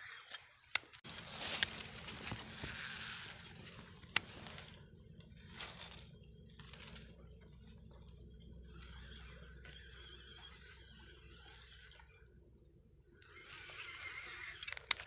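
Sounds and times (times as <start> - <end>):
high-pitched insect drone: 1.0 - 15.0.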